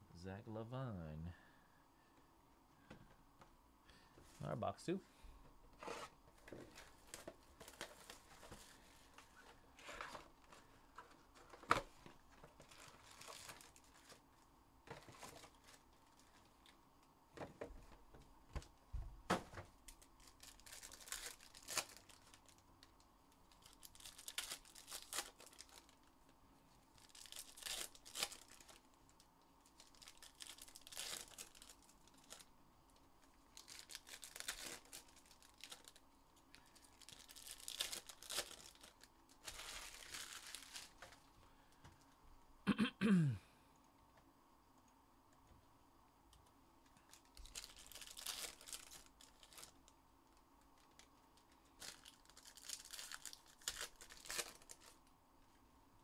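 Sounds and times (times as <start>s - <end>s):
plastic wrapping tearing and crinkling: 5.8s - 16.8s, 19.3s - 26.1s, 26.9s - 41.3s, 47.0s - 49.9s, 50.8s - 55.1s.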